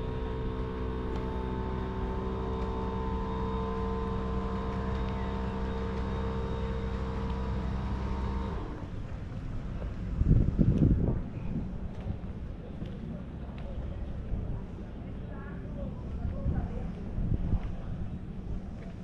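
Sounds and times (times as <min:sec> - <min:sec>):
motor running: 0:00.0 - 0:09.2
wind gust on microphone: 0:10.0 - 0:12.3, 0:16.1 - 0:18.8.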